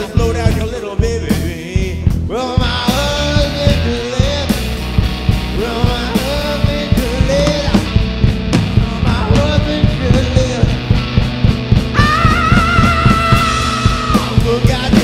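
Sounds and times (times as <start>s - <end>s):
man singing: 0.0s - 4.7s, 5.5s - 7.9s, 8.7s - 10.9s, 11.9s - 15.0s
drum kit beat: 0.0s - 15.0s
electric bass: 0.0s - 15.0s
electric guitar: 0.0s - 15.0s.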